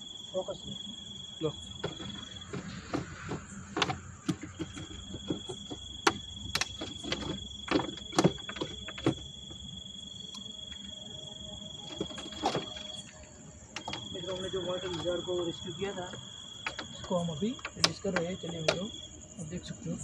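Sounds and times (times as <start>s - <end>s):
crickets trilling: 0.0s - 20.0s
plastic jar clicking and knocking: 1.8s - 9.3s.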